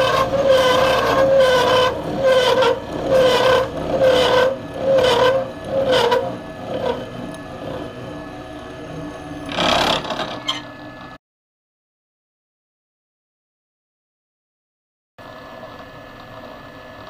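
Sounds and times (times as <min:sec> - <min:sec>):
pulsing squeal: 0:00.0 - 0:10.9
milling machine cutting steel: 0:00.0 - 0:11.2.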